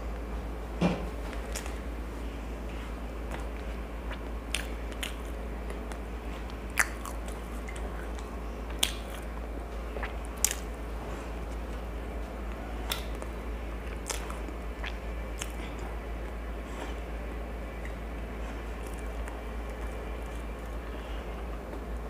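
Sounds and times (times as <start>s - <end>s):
steady low hum: 0.0s - 22.0s
person chewing food: 1.3s - 21.9s
wet mouth clicks: 4.1s - 6.0s, 6.7s - 9.3s, 10.0s - 10.7s, 12.9s - 13.3s, 13.9s - 15.6s.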